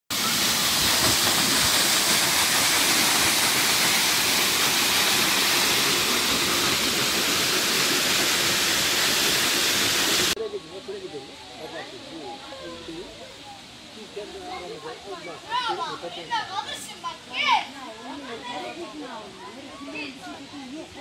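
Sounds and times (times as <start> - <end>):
waterfall rushing: 0.1 - 10.4.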